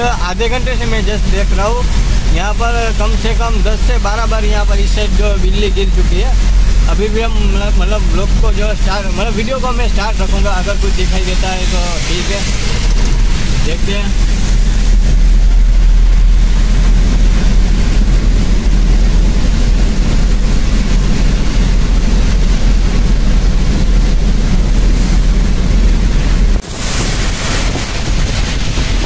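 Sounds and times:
heavy rain: 0.0s - 29.0s
road hiss: 0.0s - 29.0s
vehicle cabin rumble: 0.0s - 29.0s.

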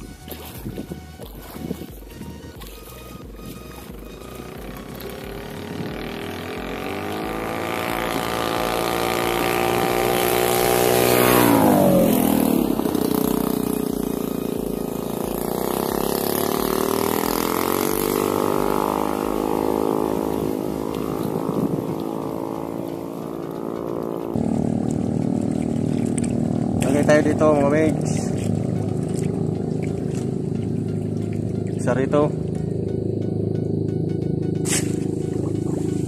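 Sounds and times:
motorboat engine passing by: 0.0s - 36.0s.

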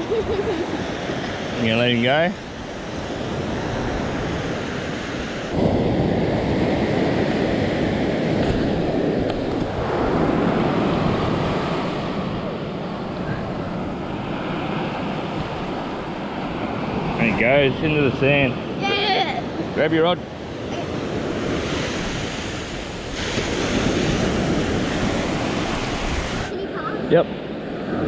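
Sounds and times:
surf washing up beach: 0.0s - 28.0s
wind on microphone: 0.0s - 28.0s.

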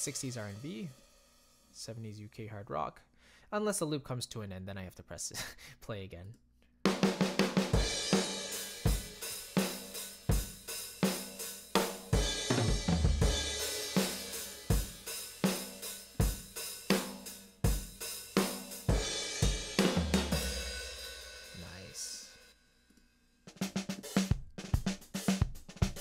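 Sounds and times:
drum kit playing rock groove: 0.0s - 1.1s, 6.9s - 22.3s, 23.5s - 26.0s.

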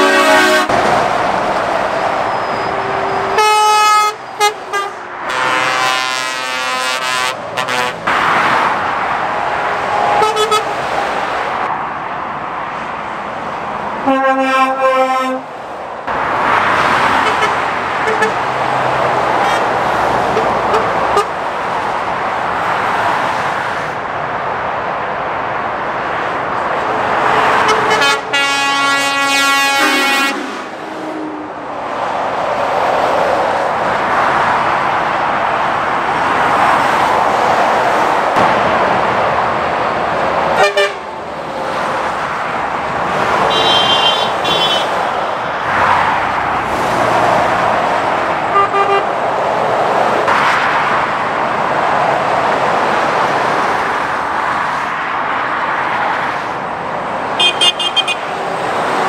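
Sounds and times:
vehicle horn: 0.0s - 0.8s, 2.3s - 8.0s, 10.1s - 10.7s, 14.0s - 15.5s, 27.4s - 31.5s, 40.6s - 41.1s, 43.5s - 45.0s, 48.5s - 49.1s, 57.4s - 58.3s
motorway traffic passing: 0.0s - 59.0s.

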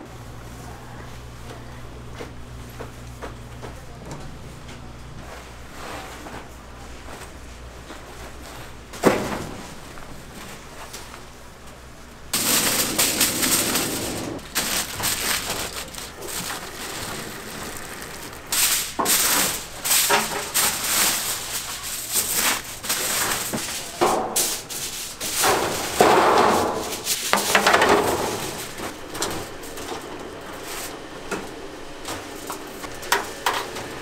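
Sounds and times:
steel tray scraping: 12.4s - 23.9s
aluminium foil crinkling: 12.4s - 25.8s.

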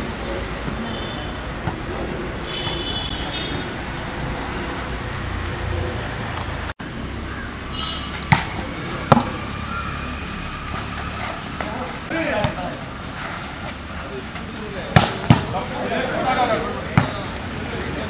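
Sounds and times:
volleyball being hit: 8.1s - 9.4s, 14.9s - 15.6s.

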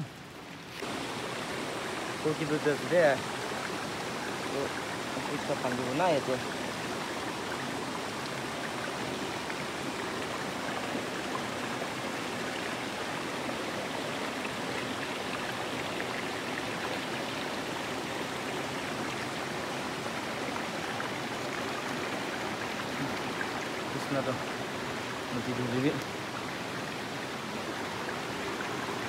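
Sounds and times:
stream rushing: 0.0s - 29.0s.

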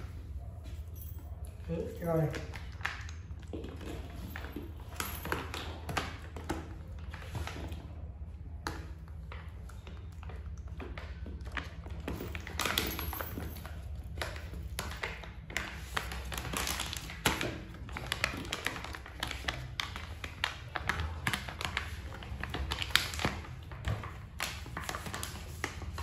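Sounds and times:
plastic rustling: 12.1s - 26.0s.

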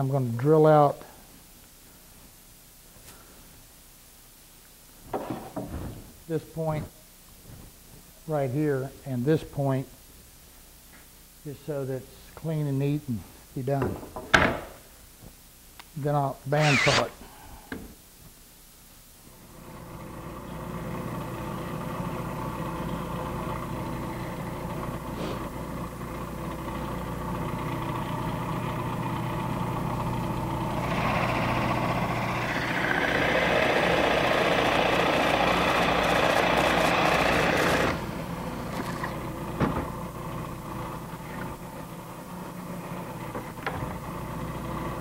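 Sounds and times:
woodworking machine motor running: 16.6s - 17.1s, 19.6s - 39.6s
machine cutting into wood: 16.6s - 17.2s, 30.8s - 38.1s.

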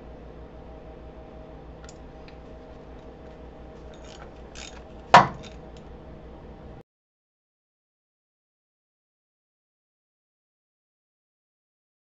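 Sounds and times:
ratchet wrench clicks: 3.9s - 5.6s.

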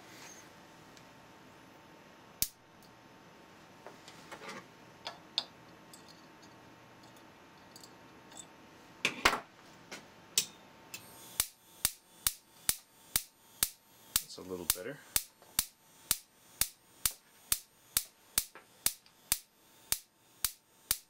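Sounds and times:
spark gap snapping: 11.3s - 21.0s.

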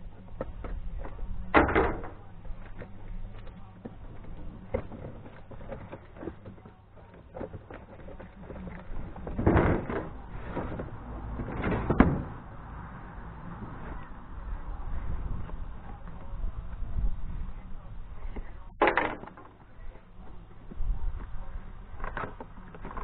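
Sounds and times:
cardboard scraping rustles: 4.0s - 12.0s.

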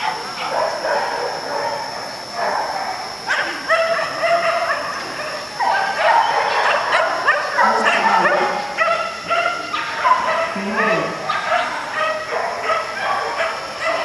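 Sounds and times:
dog barking in high yips: 2.4s - 14.0s.

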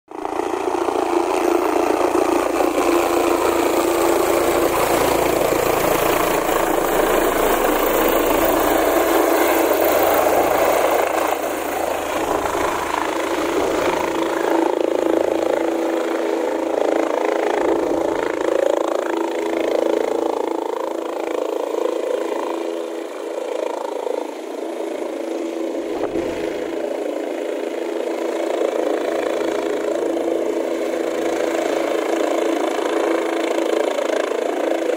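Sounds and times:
helicopter rotor drone: 0.1s - 34.9s.

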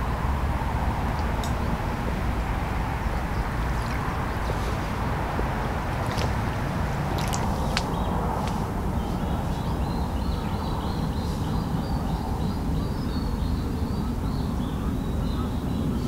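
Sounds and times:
steady low rumble: 0.0s - 12.8s.

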